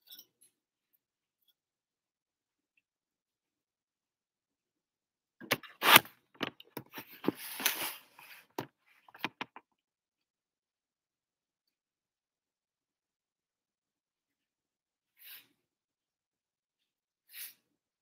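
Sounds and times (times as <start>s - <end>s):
camera handling noise: 5.4s - 8.0s.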